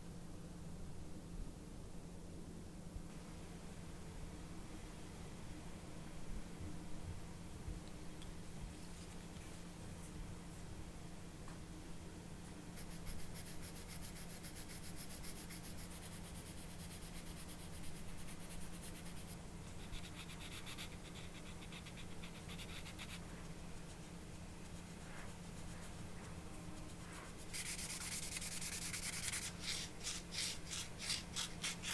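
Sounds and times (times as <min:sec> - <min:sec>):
sanding stick rubbing plastic: 0:27.4 - 0:31.9.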